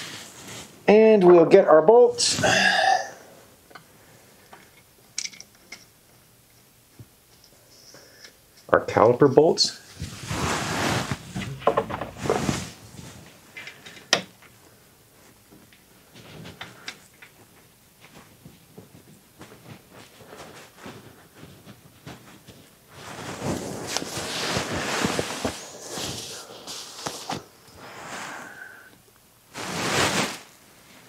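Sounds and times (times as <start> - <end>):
rustling: 9.7 - 28.6, 29.5 - 31.0.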